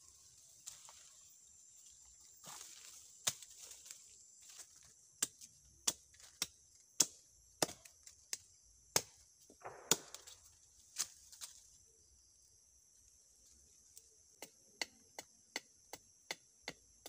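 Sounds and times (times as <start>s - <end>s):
dry leaves rustling: 0.0s - 5.0s
insects buzzing: 0.0s - 17.0s
machete chopping wood: 5.2s - 10.4s.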